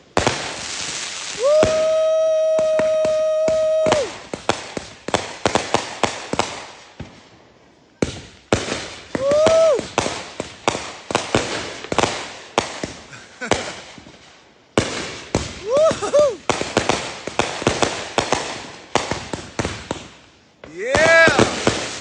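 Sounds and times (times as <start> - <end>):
firework whistle: 0.0 - 7.2, 7.9 - 11.6, 14.9 - 22.0
fireworks bangs and cracks: 0.0 - 22.0.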